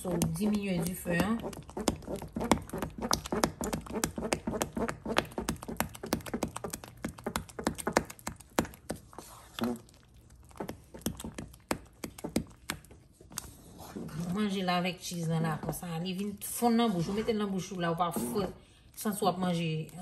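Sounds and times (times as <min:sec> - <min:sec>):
spoon beating cornmeal in pot: 0:00.0 - 0:14.2.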